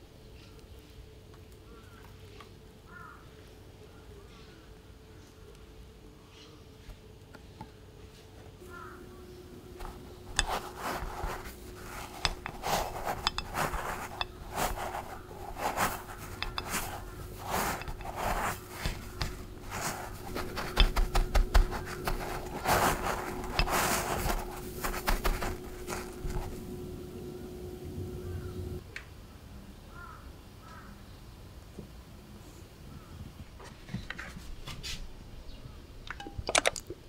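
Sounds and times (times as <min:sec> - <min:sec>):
faint steady hum: 0:00.0 - 0:33.5
bread crumbs rustling and crunching: 0:08.6 - 0:27.4
scraping against glass dish: 0:09.6 - 0:27.5.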